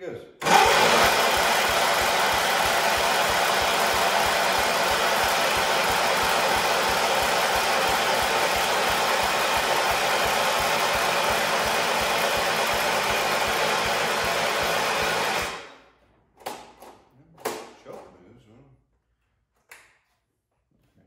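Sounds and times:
electric starter cranking engine: 0.4 - 15.8.

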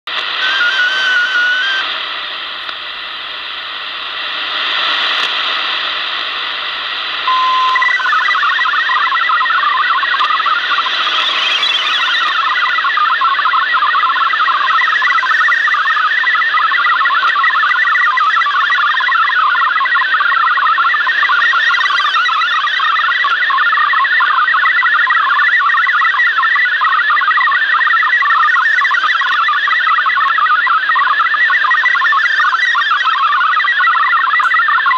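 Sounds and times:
shortwave radio hiss: 0.1 - 19.9
warbling data signal tones: 0.2 - 1.9, 7.2 - 34.9.

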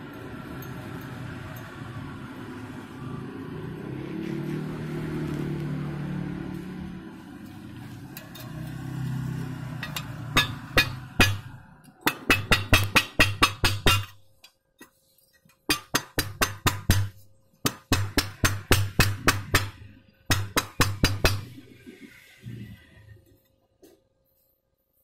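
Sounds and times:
chipping hammer knocking on steel: 10.4 - 14.2, 15.7 - 21.5.

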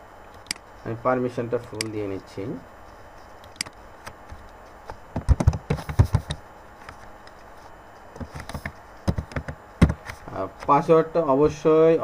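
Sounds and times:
keyboard keys clicking: 5.2 - 6.4.

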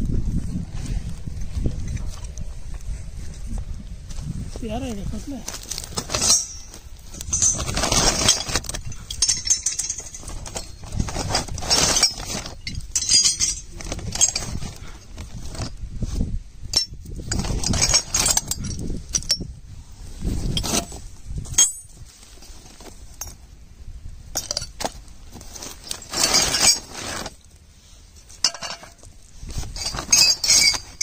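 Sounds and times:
plastic sack rustling: 5.4 - 16.2
metal pipe fittings clinking: 6.1 - 11.0, 11.6 - 14.6, 16.7 - 19.5, 21.5 - 22.0, 24.4 - 24.8, 28.4 - 29.1, 29.8 - 31.0.

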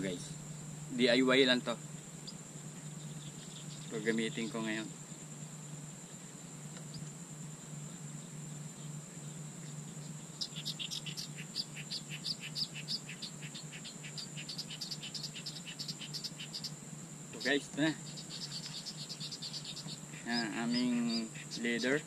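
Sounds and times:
small animals chirping: 2.2 - 4.9, 9.7 - 22.0.

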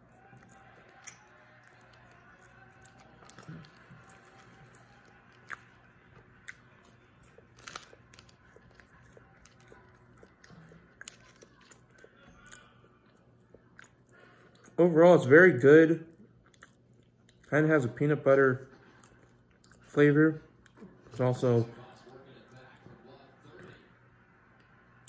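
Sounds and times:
chewing crunchy nut bar: 0.0 - 14.8, 16.1 - 17.6
low room hum: 0.0 - 25.0.

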